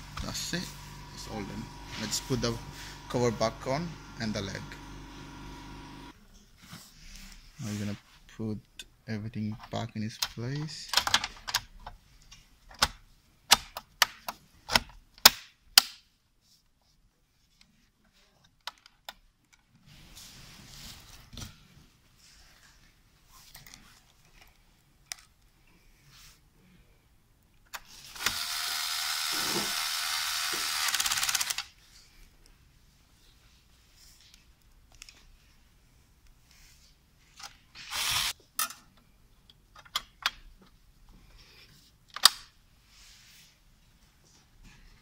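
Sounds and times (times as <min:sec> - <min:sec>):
sharp clicks and knocks of parts: 0:38.6 - 0:40.8, 0:42.1 - 0:42.5.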